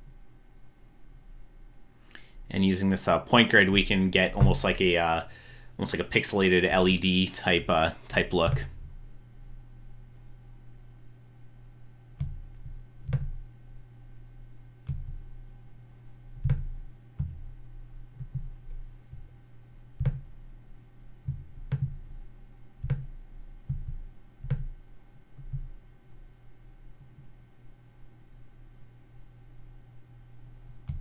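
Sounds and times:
faint steady hum: 0.0 - 31.0
computer mouse clicking: 18.2 - 19.4, 21.3 - 22.0, 22.8 - 24.7.

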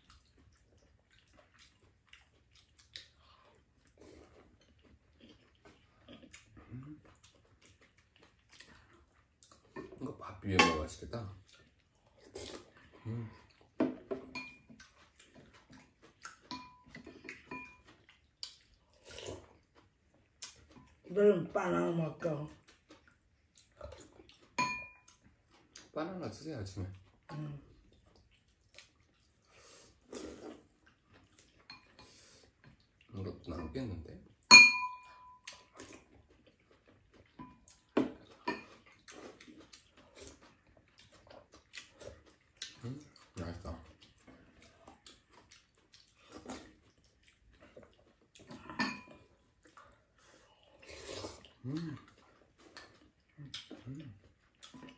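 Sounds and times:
spoons clinking against ceramic bowls: 10.6 - 10.9, 14.2 - 14.7, 16.5 - 17.8, 24.6 - 25.1, 31.7 - 32.1, 34.5 - 35.5, 38.4 - 38.7, 48.7 - 49.2
slurping soup: 12.0 - 13.8, 18.0 - 19.8, 28.8 - 32.6, 49.4 - 54.9
utensils tapping on bowls: 24.6 - 25.0, 34.5 - 35.4.

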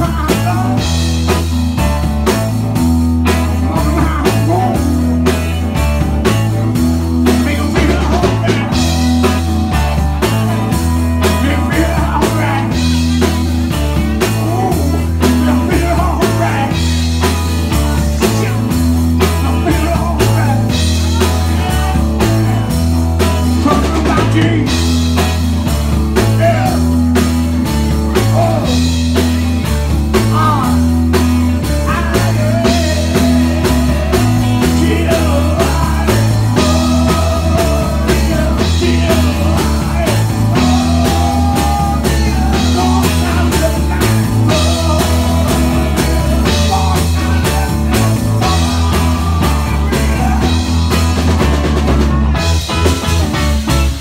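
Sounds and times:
man singing into a microphone: 0.0 - 1.0, 3.5 - 5.2, 7.2 - 13.6, 14.2 - 17.2, 17.8 - 24.9, 26.2 - 27.1, 28.1 - 31.0, 31.6 - 51.1
drum kit: 0.0 - 54.0
electric guitar: 0.0 - 54.0
low bass line: 0.0 - 54.0.

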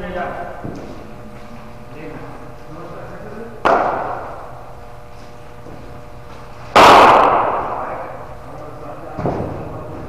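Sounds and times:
cricket ball impact crack: 3.6 - 4.4.

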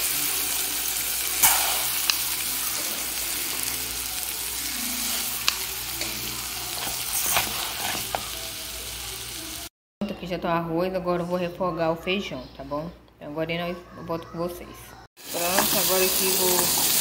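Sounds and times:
onion sizzling in hot oil: 0.0 - 9.7, 15.2 - 17.0.

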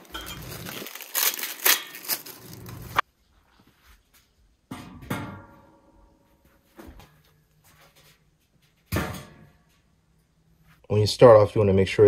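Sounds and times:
plastic wrap crinkling: 0.0 - 3.0.

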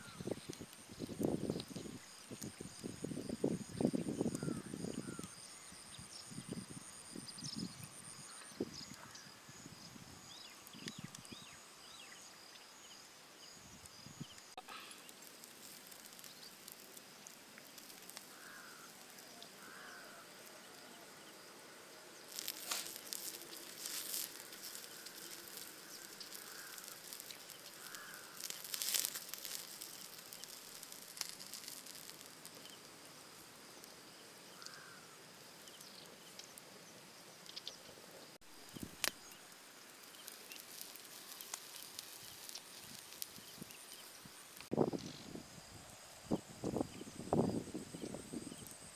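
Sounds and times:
wood fire crackling and popping: 0.0 - 5.4, 10.5 - 11.5, 14.1 - 20.6, 22.2 - 36.8, 38.4 - 45.1.

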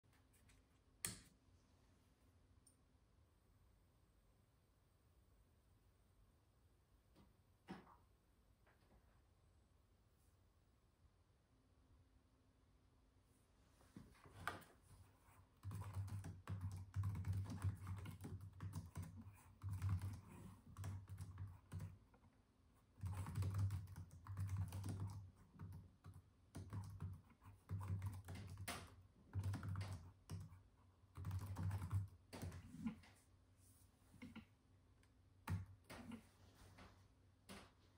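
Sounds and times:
keyboard typing clicks: 15.6 - 22.0, 23.0 - 32.6.

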